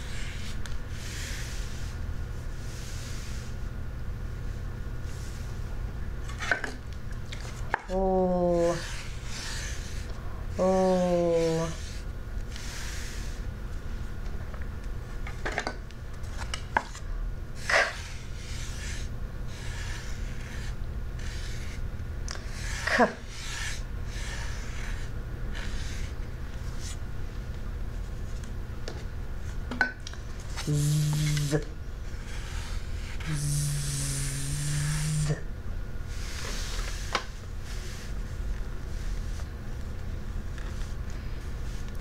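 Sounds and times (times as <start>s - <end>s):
woman making letter sounds: 7.9s - 8.9s, 10.6s - 12.0s, 30.6s - 31.7s
fingertips rubbing sandpaper: 8.3s - 12.0s, 17.6s - 21.8s, 22.4s - 26.2s, 30.6s - 31.6s, 32.2s - 35.4s.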